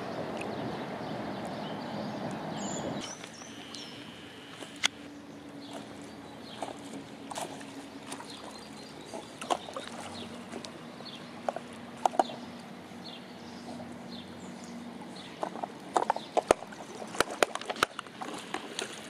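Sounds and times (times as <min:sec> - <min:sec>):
steady low hum: 0:00.0 - 0:19.0
small splashes in water: 0:05.6 - 0:10.8.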